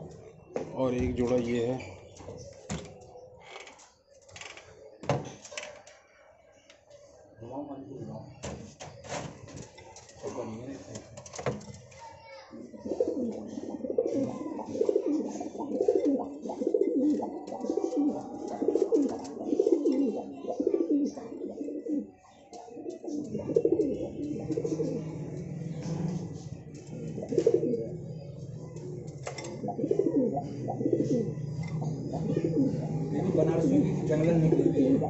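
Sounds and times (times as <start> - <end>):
pigeons cooing: 12.5 - 35.0.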